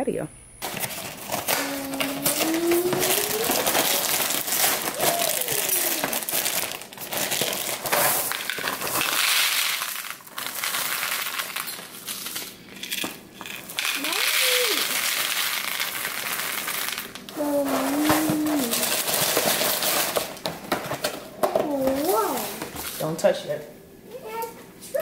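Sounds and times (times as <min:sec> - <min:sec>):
cereal rattling into bowl: 0:00.6 - 0:20.4
plastic bag crinkling: 0:00.6 - 0:20.4.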